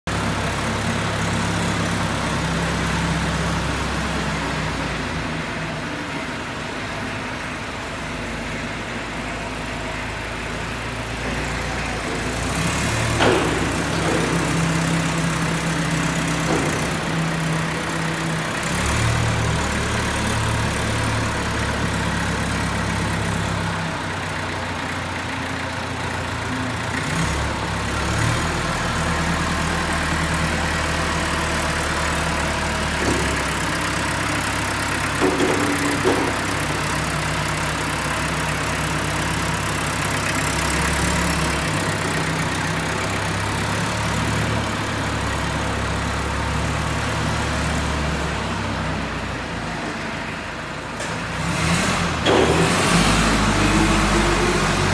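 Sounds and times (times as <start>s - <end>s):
forklift engine running: 0.1s - 54.9s.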